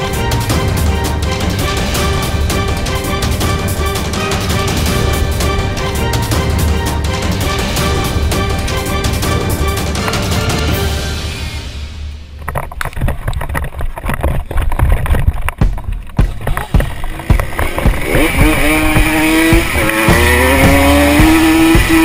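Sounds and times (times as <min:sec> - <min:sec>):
sharp knocks and clatter: 0:12.4 - 0:22.0
moped engine revving: 0:16.2 - 0:22.0.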